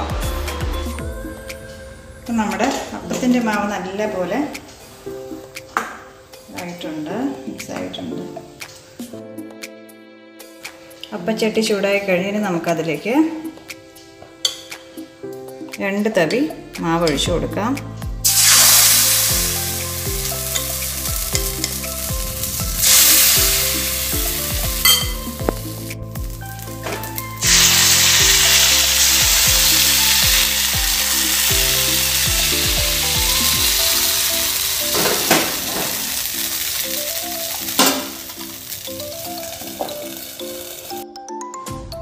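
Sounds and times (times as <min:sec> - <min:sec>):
batter sizzling in a hot pan: 0:18.2 - 0:41.0.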